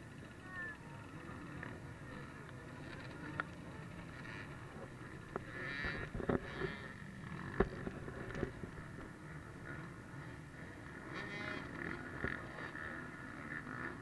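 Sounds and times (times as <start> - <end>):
crowd voices: 0.0 - 6.3
motorcycle engines rumbling: 0.0 - 14.0.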